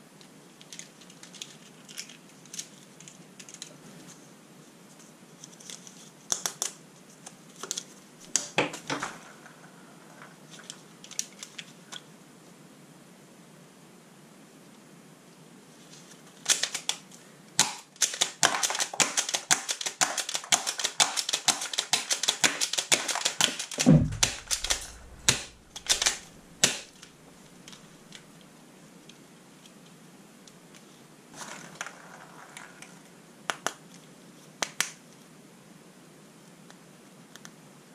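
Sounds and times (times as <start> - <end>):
plastic toy guns clicking: 16.4 - 17.0, 17.6 - 23.8, 24.4 - 27.0
dull thump: 23.8 - 26.8.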